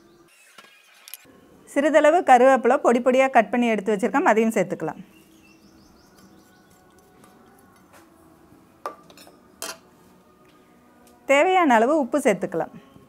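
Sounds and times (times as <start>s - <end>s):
steel bowls clinking: 8.9s - 9.9s.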